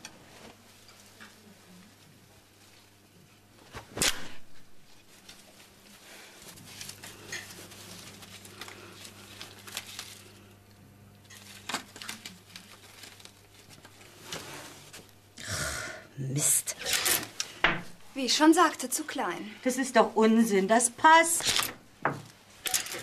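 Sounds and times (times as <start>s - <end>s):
fabric rustling and crinkling: 0.0s - 15.2s.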